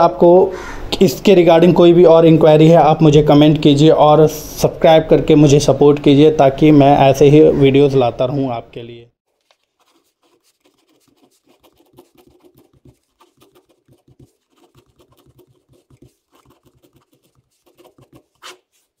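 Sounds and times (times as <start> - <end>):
ballpoint pen scratching on paper: 9.5 - 19.0.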